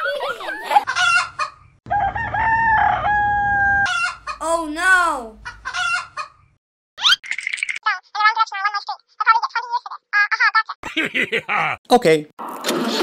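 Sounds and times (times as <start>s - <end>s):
chickens clucking: 0.0s - 1.8s, 3.9s - 4.4s, 5.4s - 6.6s
rooster crowing: 1.0s - 4.3s.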